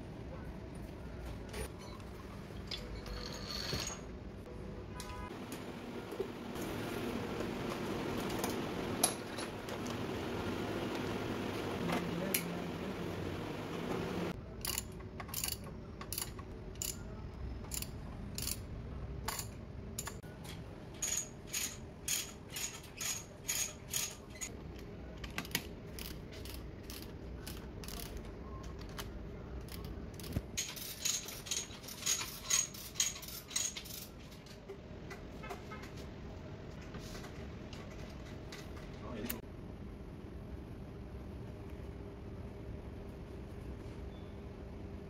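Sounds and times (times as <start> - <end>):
chain hoist ratchet clicking: 14.6 - 17.0.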